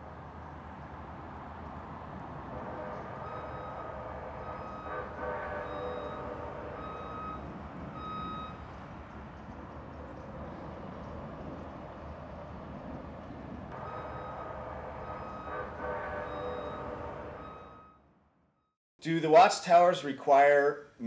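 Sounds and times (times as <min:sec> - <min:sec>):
short electronic beeps: 0:03.3 - 0:08.6, 0:13.8 - 0:18.0.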